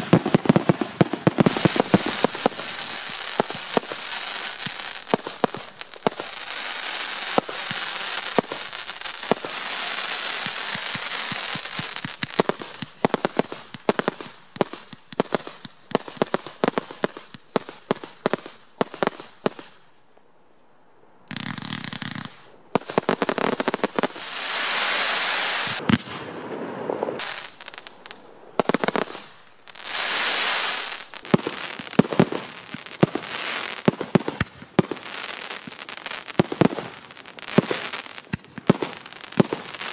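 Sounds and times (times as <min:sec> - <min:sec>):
fireworks hissing: 0:00.0 - 0:17.3, 0:21.3 - 0:39.9
fireworks crackling and banging: 0:00.0 - 0:19.8, 0:21.3 - 0:39.9.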